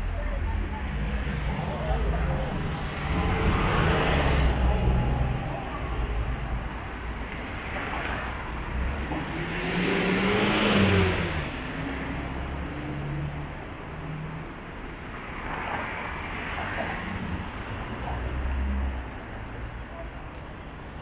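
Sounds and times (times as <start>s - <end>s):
street hum: 0.0s - 21.0s.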